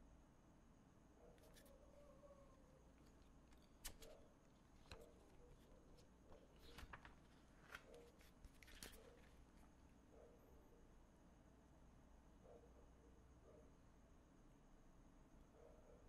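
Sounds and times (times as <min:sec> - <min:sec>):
paper rustling: 0:01.4 - 0:01.7, 0:03.0 - 0:04.2, 0:04.8 - 0:09.7.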